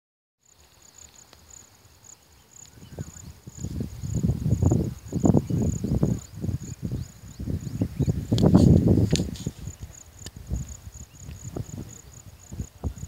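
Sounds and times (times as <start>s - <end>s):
insects trilling: 0.4s - 13.0s
wind buffeting microphone: 2.7s - 13.0s.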